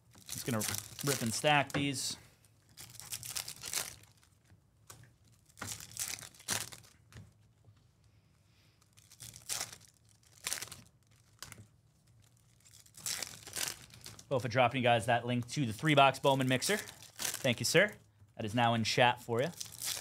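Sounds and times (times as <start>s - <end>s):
foil wrappers crinkling and tearing: 0.0s - 7.1s, 8.8s - 14.6s, 15.7s - 18.0s, 19.4s - 20.0s.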